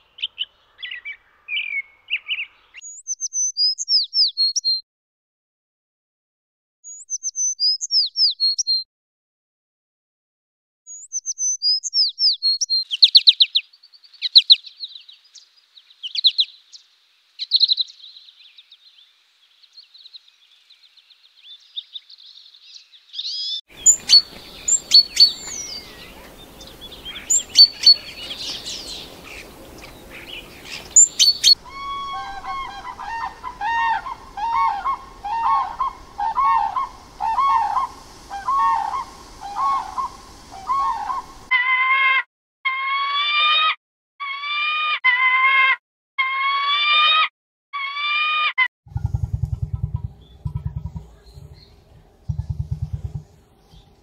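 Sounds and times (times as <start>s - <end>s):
faint woodland ambience: 0.0s - 4.8s, 11.0s - 41.5s, 48.9s - 54.0s
sparrow chirping: 0.2s - 4.8s, 6.9s - 8.8s, 10.9s - 41.5s, 48.9s - 54.0s
great tit sharp calls: 23.2s - 41.5s
cranes honking calls: 23.7s - 41.5s.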